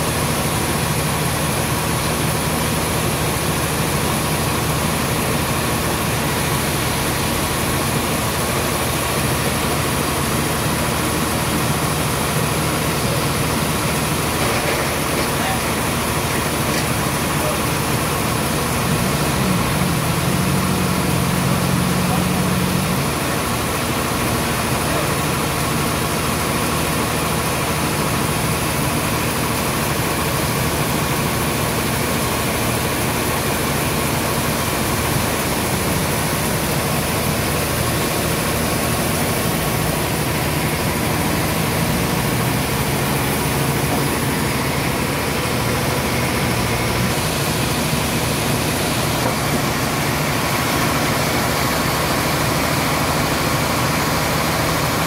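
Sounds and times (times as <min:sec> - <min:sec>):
sawmill machinery hum: 0:00.0 - 0:55.0.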